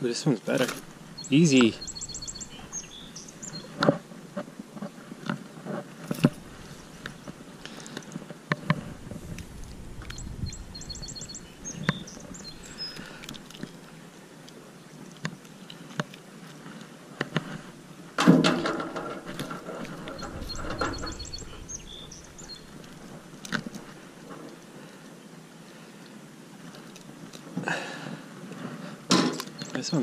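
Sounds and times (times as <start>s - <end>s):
handling clicks and rustling: 0.4s - 4.0s, 4.8s - 24.7s
songbird trilling: 0.6s - 3.8s, 6.4s - 7.8s, 8.8s - 13.6s, 19.2s - 24.1s.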